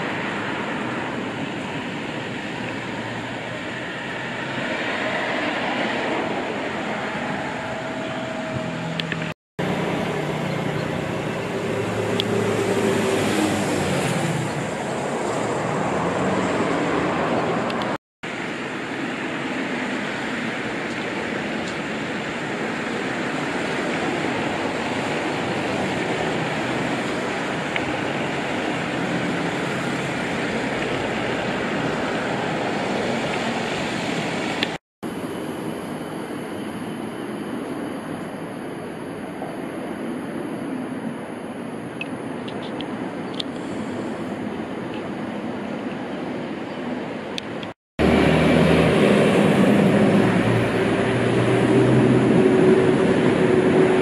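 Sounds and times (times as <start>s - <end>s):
vehicle passing: 0.0s - 18.0s, 48.0s - 54.0s
road traffic hum: 0.0s - 54.0s.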